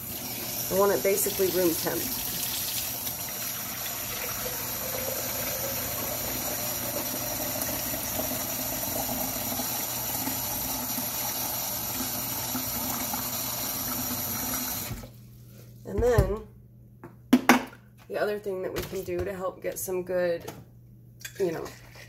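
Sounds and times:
faucet running into sink: 0.0s - 15.1s.

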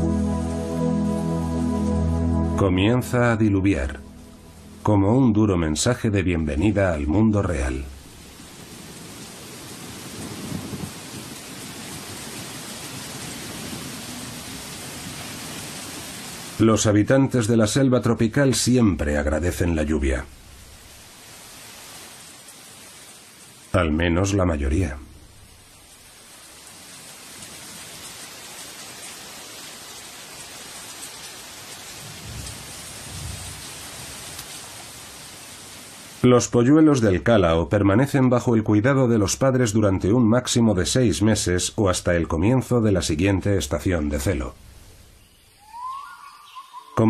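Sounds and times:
low rumble: 0.0s - 5.9s
heavy rain on foliage: 5.8s - 17.4s, 18.0s - 47.0s
thunder rumbles: 8.0s - 15.2s, 32.0s - 34.4s.

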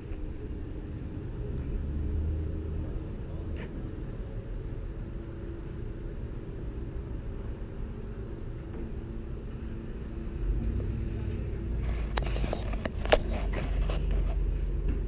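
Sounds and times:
held low tones: 0.0s - 15.0s.

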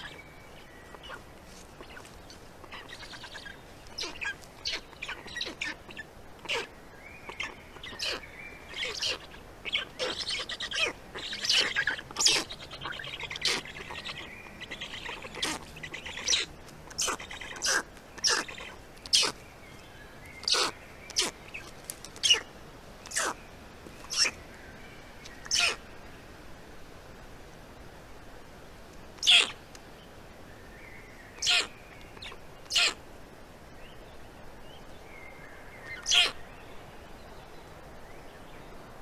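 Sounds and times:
faint tonal bird calls: 0.0s - 26.2s, 29.2s - 39.0s
chicks harsh calls: 2.7s - 6.7s, 7.3s - 19.4s, 23.1s - 23.4s, 24.0s - 24.4s, 25.4s - 25.8s, 29.2s - 29.6s, 31.4s - 33.0s, 36.0s - 36.4s.

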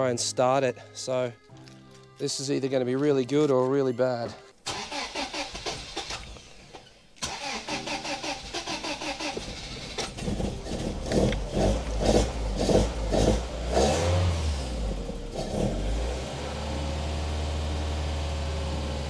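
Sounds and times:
car engine starting unevenly: 4.7s - 19.0s.

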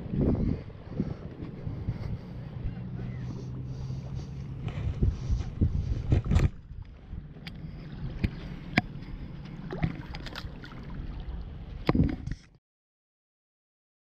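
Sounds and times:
wind rumble on microphone: 0.0s - 12.5s
water sloshing and lapping: 0.0s - 12.6s
small water splashes: 6.1s - 12.3s.

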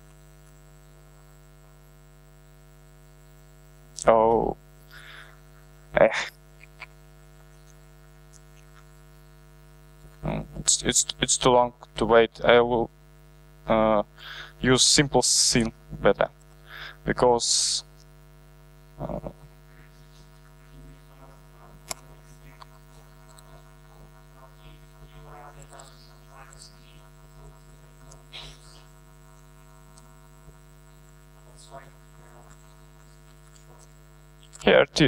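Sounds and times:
electrical mains hum: 0.0s - 35.0s
low voice-like sound: 10.2s - 10.9s, 19.0s - 19.5s.

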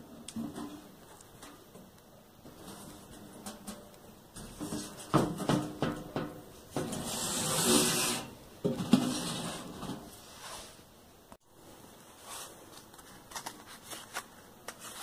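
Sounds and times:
metal lid scraping in tracks: 2.5s - 10.7s
metal bread box knocking: 4.5s - 6.9s.

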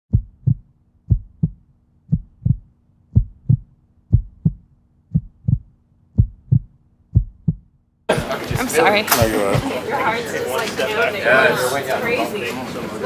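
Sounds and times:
heartbeat thumps: 0.1s - 9.6s.

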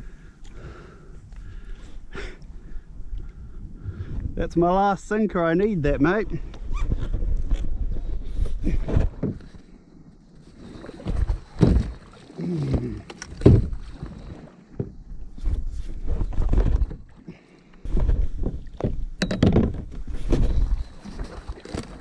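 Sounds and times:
water splashing: 10.5s - 14.8s, 20.5s - 22.0s
knocks against kayak hull: 18.8s - 20.4s.

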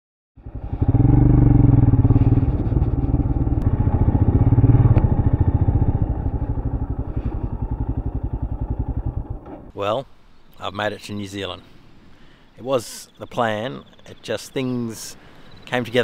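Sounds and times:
motorcycle engine running: 0.4s - 9.7s.

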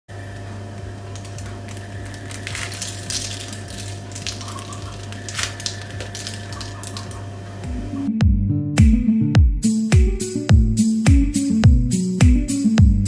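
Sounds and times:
steady low hum: 0.1s - 13.0s
bread crust crackling: 0.2s - 7.5s.

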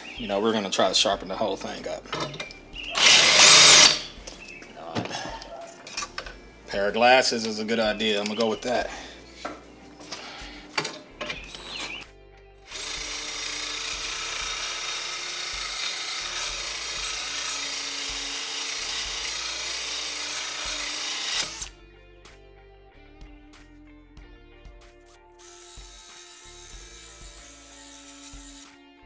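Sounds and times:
drill grinding whir: 2.9s - 4.1s, 12.7s - 21.7s, 25.4s - 28.8s.

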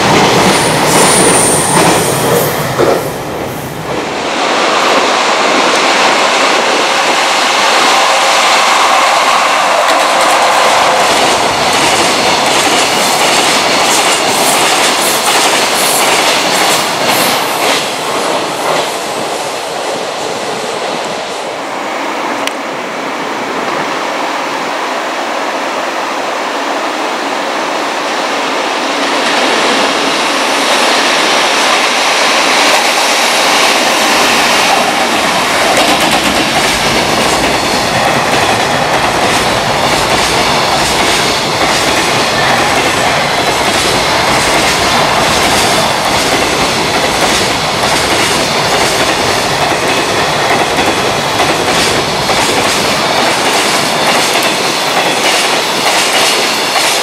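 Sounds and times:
freight train wheels clattering: 5.8s - 19.2s, 29.1s - 57.0s.

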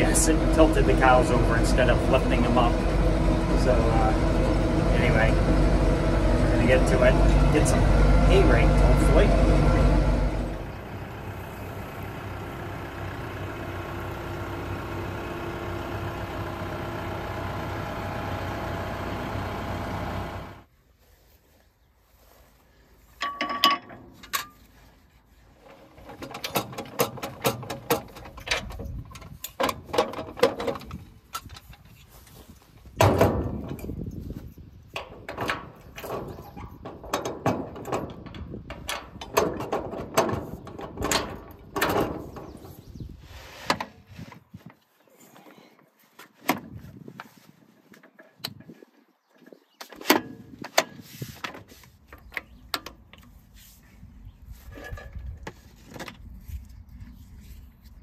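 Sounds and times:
metal clanks and rattles: 23.2s - 24.8s, 25.6s - 42.8s, 54.6s - 56.2s.

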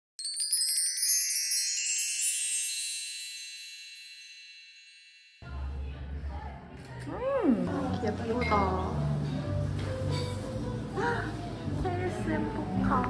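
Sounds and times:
sparkle chime: 0.2s - 5.4s.

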